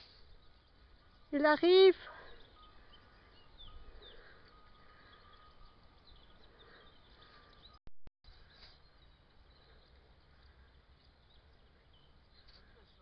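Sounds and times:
faint steady high tone: 0.0 - 7.8
faint bird chirps: 0.0 - 13.0.

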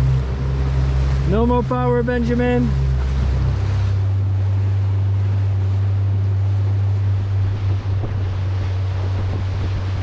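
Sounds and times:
outboard motor running: 0.0 - 10.0
water splashing along hull: 0.0 - 10.0
wind on microphone: 2.7 - 10.0.

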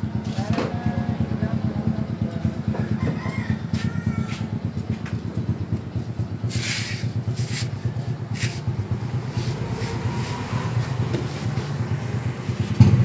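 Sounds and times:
engine idling: 0.0 - 13.0
short bursts of hiss: 6.5 - 7.8.

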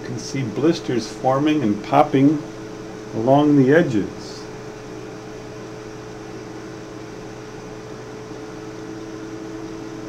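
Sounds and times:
even hiss: 0.0 - 4.7
electrical hum: 0.0 - 10.0.

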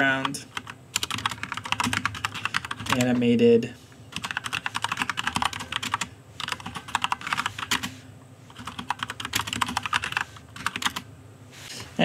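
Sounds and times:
computer keyboard typing: 0.5 - 3.3, 4.1 - 7.9, 8.5 - 11.0.

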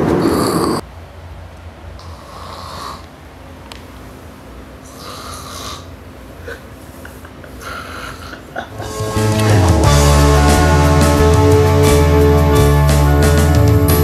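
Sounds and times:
person snoring: 2.0 - 3.1, 4.9 - 5.9.

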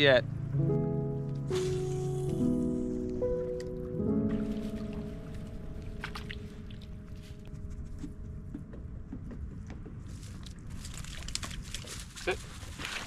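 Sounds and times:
background music: 0.0 - 10.1
water around rowboat: 0.0 - 13.0
wind rumbling on microphone: 4.3 - 13.0.

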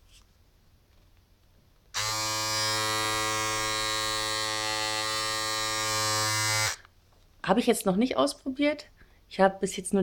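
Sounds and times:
electric shaver buzzing: 2.0 - 6.8.

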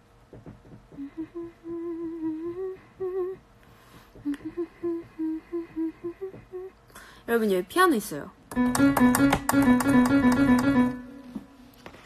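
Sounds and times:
woman humming: 0.9 - 3.5, 4.2 - 6.9.

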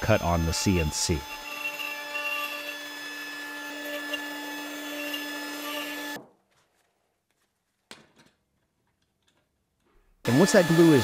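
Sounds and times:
electric machine motor hum: 0.0 - 6.2, 10.2 - 11.0.

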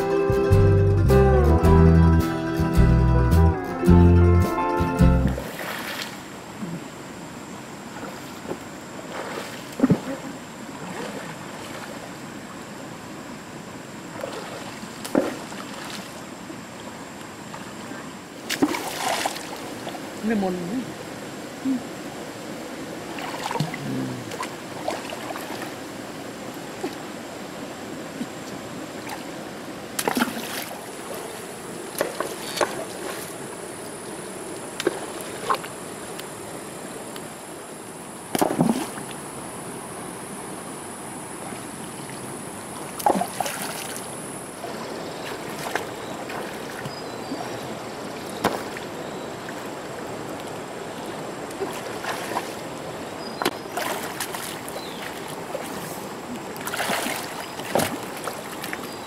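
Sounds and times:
stream running over stones: 5.2 - 59.0
stones splashing and knocking: 9.3 - 10.2, 15.0 - 15.6, 18.5 - 19.4, 30.0 - 30.7, 32.0 - 33.3, 38.3 - 39.1, 48.4 - 48.8, 56.6 - 58.8.

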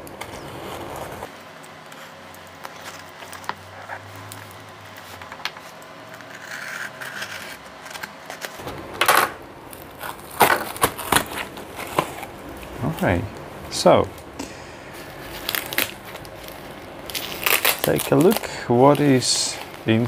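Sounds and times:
knife scraping cardboard: 0.1 - 1.3, 5.1 - 8.6.

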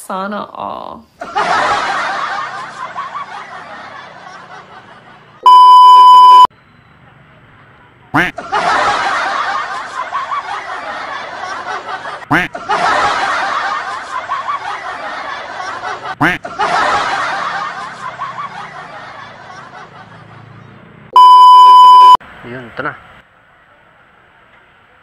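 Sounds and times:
crowd laughing: 1.2 - 6.4, 8.2 - 20.9.

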